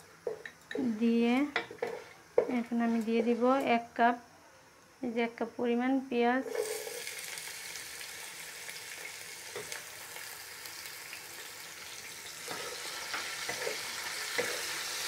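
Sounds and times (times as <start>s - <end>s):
wooden spatula scraping: 1.7s - 3.6s, 6.4s - 7.0s
onions sizzling in oil: 6.4s - 15.0s.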